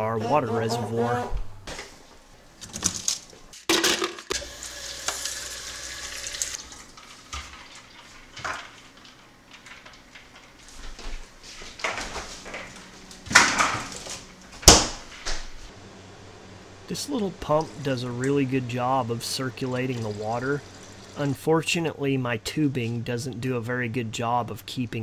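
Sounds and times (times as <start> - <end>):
ice cubes clattering into pitcher: 2.7 - 4.4, 6.1 - 10.6.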